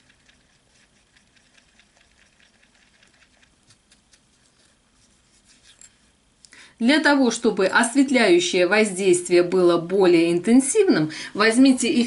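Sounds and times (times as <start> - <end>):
whisk ticking on glass bowl: 0.0 - 3.6.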